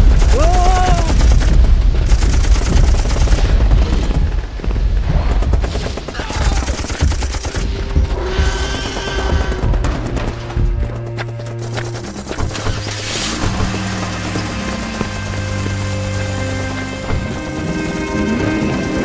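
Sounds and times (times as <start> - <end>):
automatic gunfire: 0.0 - 4.1, 5.4 - 7.8.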